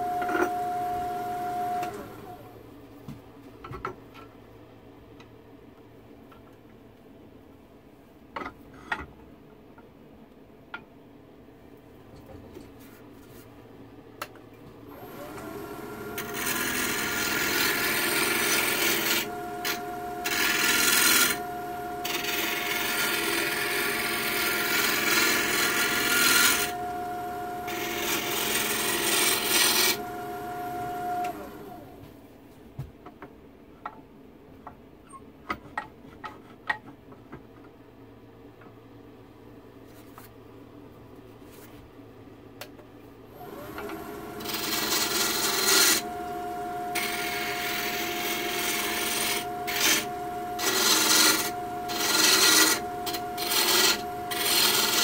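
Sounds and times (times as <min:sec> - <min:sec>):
wood lathe motor whine: 0:00.0 - 0:02.6, 0:14.9 - 0:32.0, 0:43.4 - 0:55.0
turning tool cutting wood: 0:15.0 - 0:31.8, 0:43.4 - 0:55.0.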